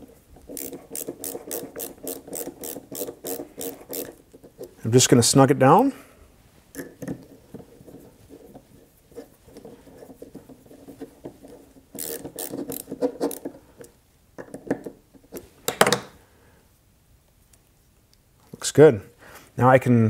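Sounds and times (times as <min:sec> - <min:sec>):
screwdriver clicking and scraping: 0:00.4 - 0:04.8, 0:06.7 - 0:15.9.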